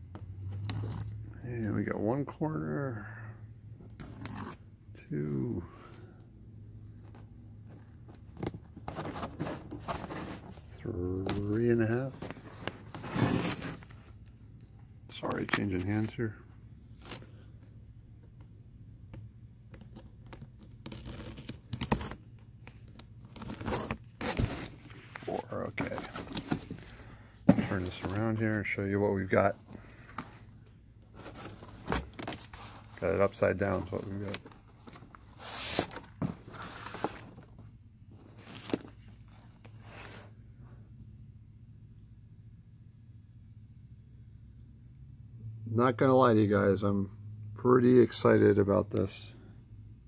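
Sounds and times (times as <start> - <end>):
packaging rustling scrape: 8.8 - 10.7, 12.1 - 14.1, 23.2 - 30.4, 31.1 - 37.5.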